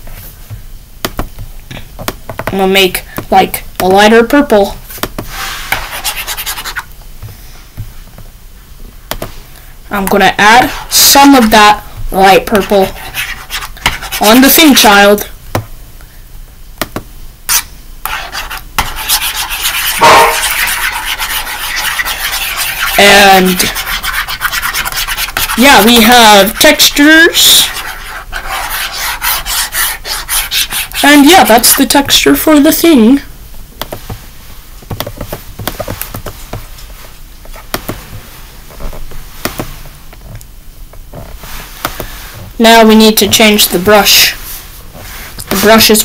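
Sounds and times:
scratchy rubbing on touchscreen: 0:05.3 - 0:06.9, 0:10.6 - 0:14.9, 0:17.5 - 0:32.1
stylus tapping on touchscreen: 0:34.9 - 0:36.6.

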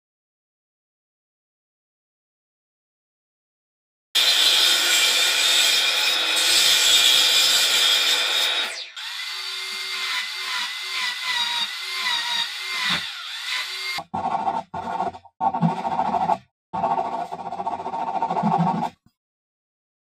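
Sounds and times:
power tool machining wood: 0:04.2 - 0:14.0.

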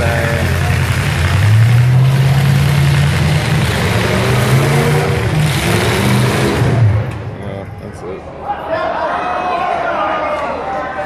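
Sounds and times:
truck engines revving loudly: 0:00.0 - 0:07.8.

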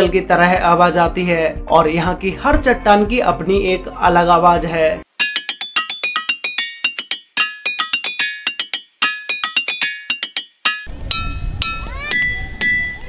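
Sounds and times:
hammers striking ringing rocks: 0:05.2 - 0:13.0.

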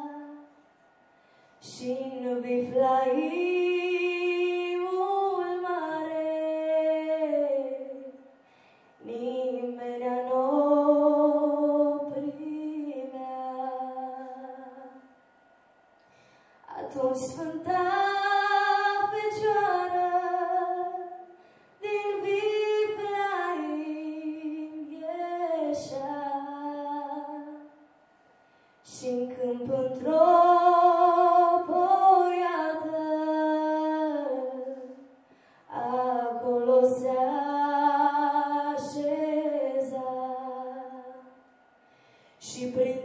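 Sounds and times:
girl singing unaccompanied: 0:16.7 - 0:27.7, 0:28.9 - 0:35.1, 0:35.7 - 0:41.4, 0:42.4 - 0:43.0.

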